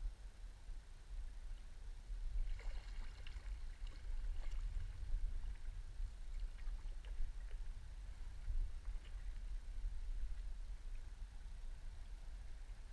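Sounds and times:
steady low rumble: 0.0 - 12.9
paddle splashing and dripping: 2.4 - 9.7.

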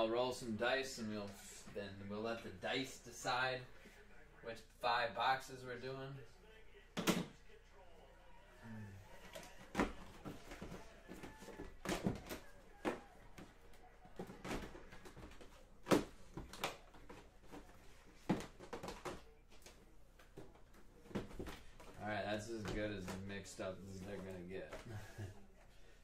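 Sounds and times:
boxes knocking together: 9.6 - 13.5.

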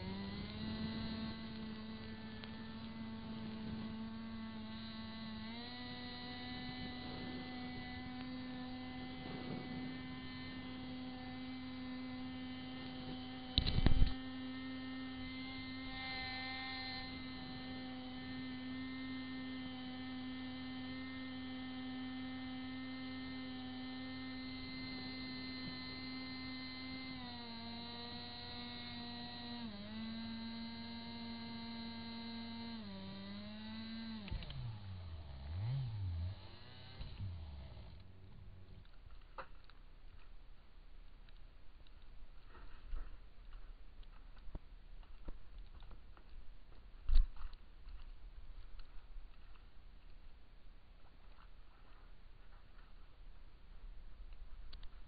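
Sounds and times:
outboard motor droning: 0.0 - 39.0.

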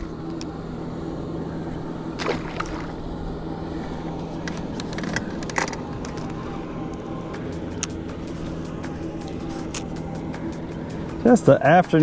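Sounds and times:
steady low hum: 0.0 - 12.0
water sloshing against hull: 2.2 - 3.0.

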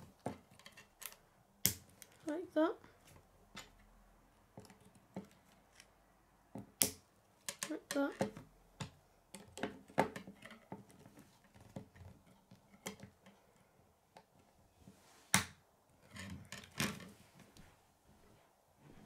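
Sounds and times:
plastic pieces clicking together: 0.2 - 2.3.

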